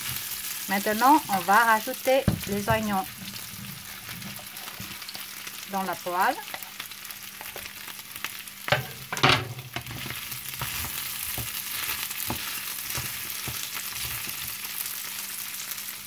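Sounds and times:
pan sizzling: 0.0 - 16.0
wooden spatula scraping pan: 2.3 - 5.2, 8.8 - 14.6
onions tipped into pan: 8.7 - 11.6.

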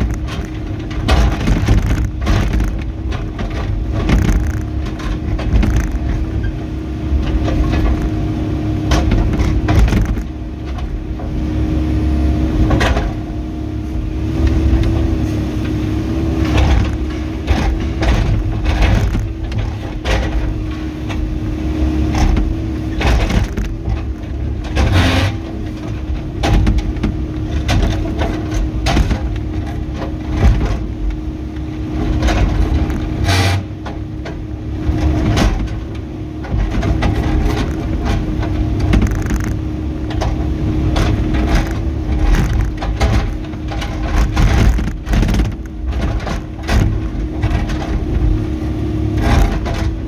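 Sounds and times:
excavator diesel engine running: 0.0 - 50.0
bucket scraping the ground: 22.1 - 25.7, 32.0 - 33.8.

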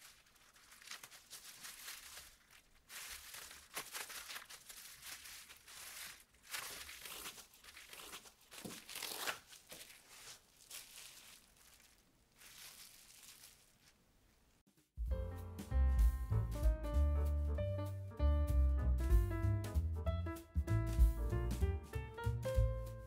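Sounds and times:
bamboo mat rustling: 0.0 - 14.5
plastic gloves crinkling: 0.0 - 14.6.

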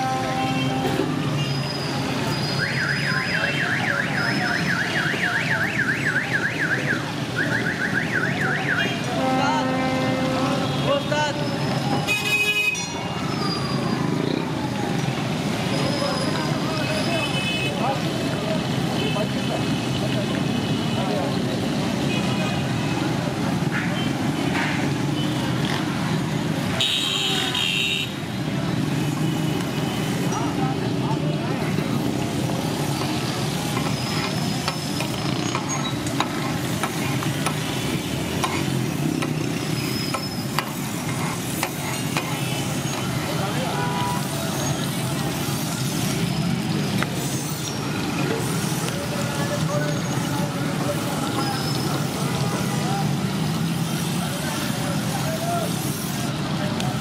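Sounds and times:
street noise hum: 0.0 - 57.0
car alarm siren: 2.5 - 8.9.

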